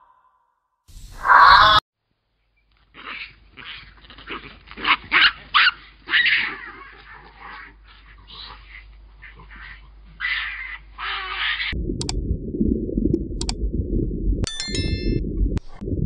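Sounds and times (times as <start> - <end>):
baboons barking yelps: 1.2 - 1.8, 2.9 - 11.8.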